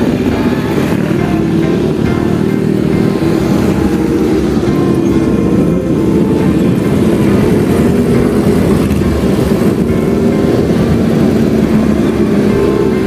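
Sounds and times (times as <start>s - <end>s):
motorcycle engines running: 0.0s - 13.0s.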